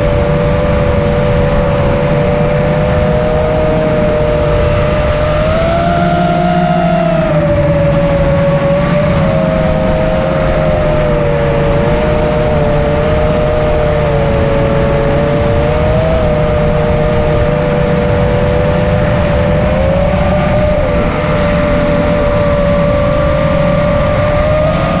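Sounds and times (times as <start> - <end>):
drone motors whining: 0.0 - 25.0
rush of noise: 0.0 - 25.0.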